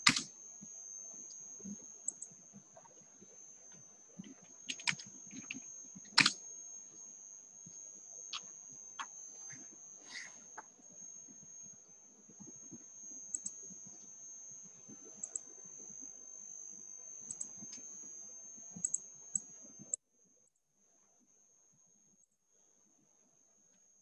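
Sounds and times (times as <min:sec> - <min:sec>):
high-pitched whine: 0:00.0 - 0:20.0
small clicks and taps: 0:03.7 - 0:06.4.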